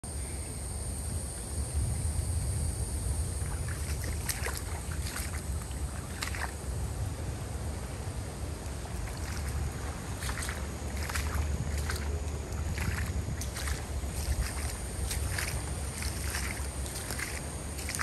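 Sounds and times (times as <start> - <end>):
wind buffeting microphone: 1.2 - 18.0
footsteps through wet grass: 3.4 - 6.6, 8.6 - 18.0.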